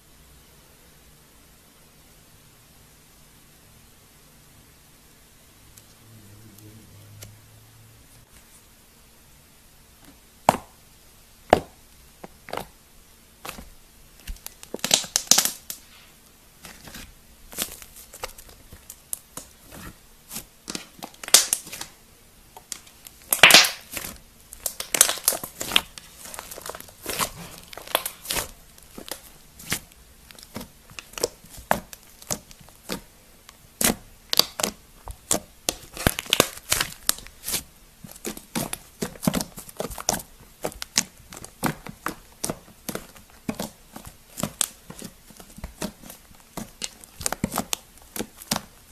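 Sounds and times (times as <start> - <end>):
slime crackling and popping: 13.4 - 15.9, 16.6 - 48.9.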